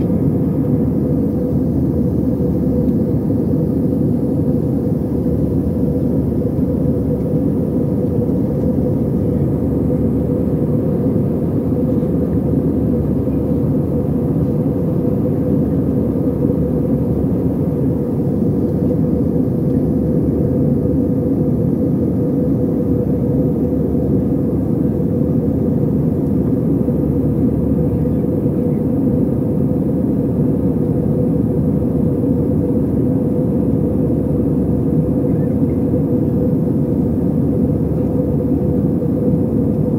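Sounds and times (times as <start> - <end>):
airliner cabin engine rumble: 0.0 - 39.9.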